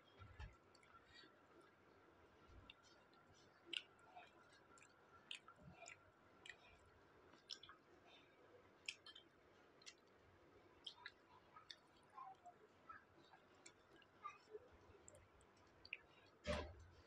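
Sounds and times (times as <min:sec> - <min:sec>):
mouth clicks of chewing: 0:02.6 - 0:07.9, 0:08.8 - 0:10.2, 0:10.8 - 0:12.4, 0:15.0 - 0:16.7.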